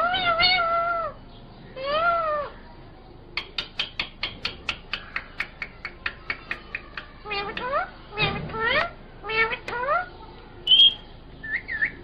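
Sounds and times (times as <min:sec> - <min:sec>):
parakeet calling: 0:03.4 - 0:12.0
sharp parakeet chirps: 0:10.7 - 0:12.0.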